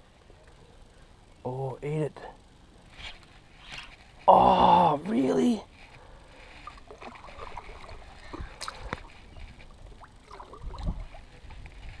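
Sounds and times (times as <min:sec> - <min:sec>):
fishing rod and reel clicks: 0:02.9 - 0:04.3, 0:05.1 - 0:12.0
water lapping against kayak: 0:06.2 - 0:12.0.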